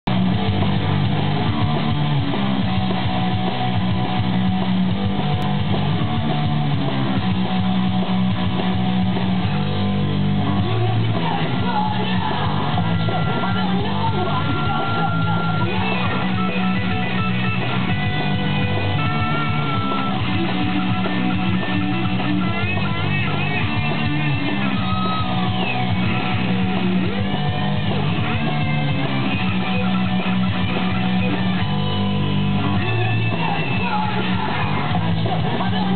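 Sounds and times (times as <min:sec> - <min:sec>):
backing track with bass line: 0:00.0 - 0:35.9
electric guitar solo: 0:10.7 - 0:35.9.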